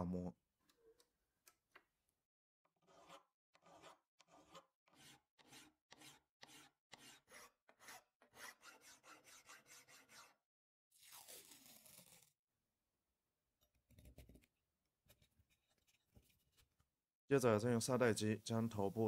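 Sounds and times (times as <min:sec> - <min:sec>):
hand file rasping on steel: 0:02.8 - 0:10.4.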